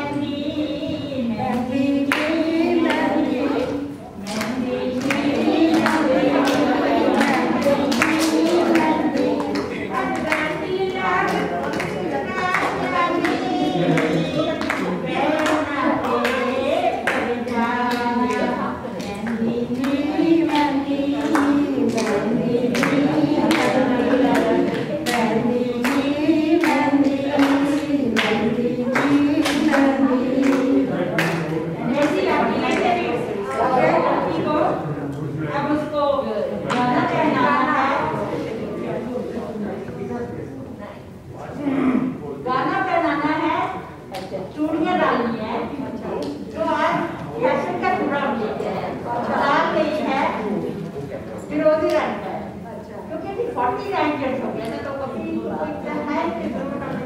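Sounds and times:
group of voices singing: 0:00.0 - 0:39.8
hand claps: 0:04.2 - 0:10.6, 0:17.9 - 0:32.9.

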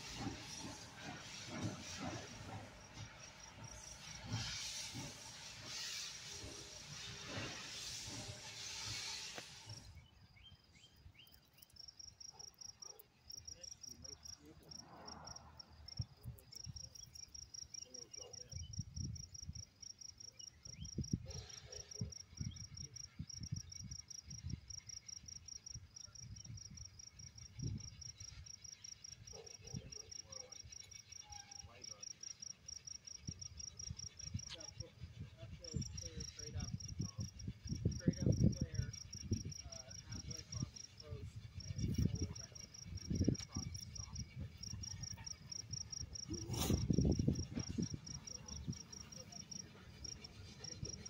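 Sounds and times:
insect chirping: 0:00.0 - 0:51.0.

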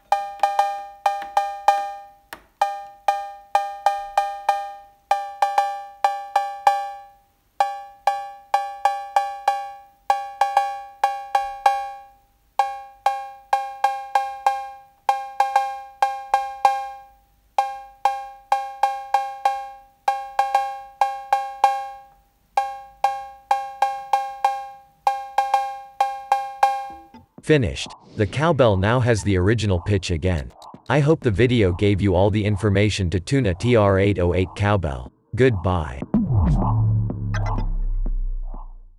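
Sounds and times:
drum machine cowbell: 0:00.0 - 0:27.3.

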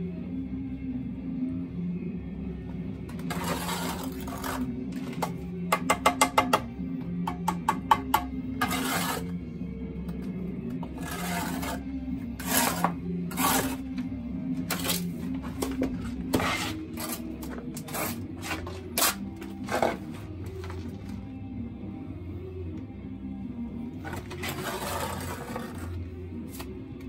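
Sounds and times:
background music: 0:00.0 - 0:27.0
trowel scraping mortar: 0:03.1 - 0:05.4, 0:08.6 - 0:09.4, 0:10.7 - 0:21.0, 0:24.0 - 0:26.7.

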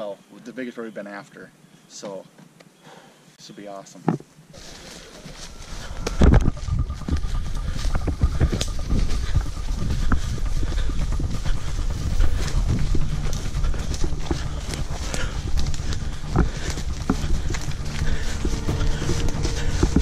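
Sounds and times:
hurried footsteps through brush: 0:04.4 - 0:20.0
rustling: 0:04.5 - 0:20.0.

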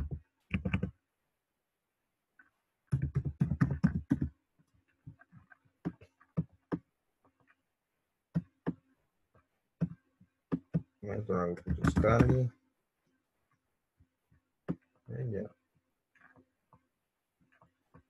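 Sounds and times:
typing on computer keyboard: 0:00.0 - 0:00.9, 0:02.9 - 0:04.3, 0:11.6 - 0:12.5.

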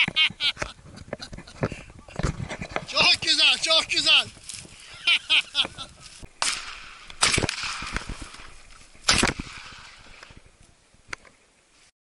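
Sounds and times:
shotgun shots echoing: 0:06.4 - 0:10.4.

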